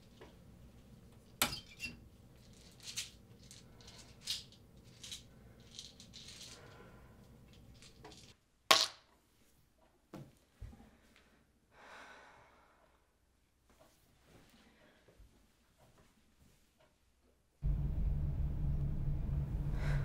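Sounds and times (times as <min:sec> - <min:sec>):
pills rattling in plastic bottle: 0:02.4 - 0:06.8, 0:07.5 - 0:08.4.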